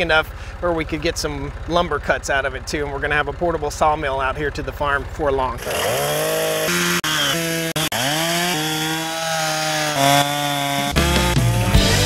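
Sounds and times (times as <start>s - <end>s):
chainsaw cutting log: 5.6s - 12.0s
chainsaw revving: 5.6s - 12.0s.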